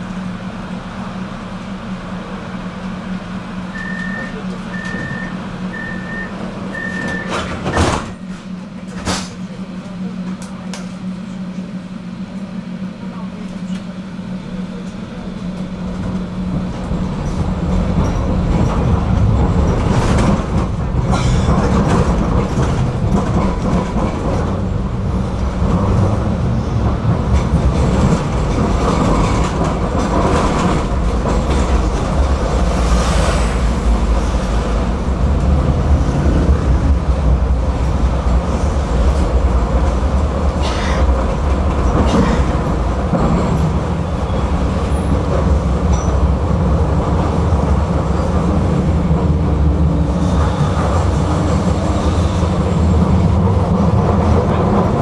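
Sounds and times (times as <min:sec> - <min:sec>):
tram rumbling along track: 0:00.0 - 0:55.0
wheels clacking over rail joints: 0:15.6 - 0:55.0.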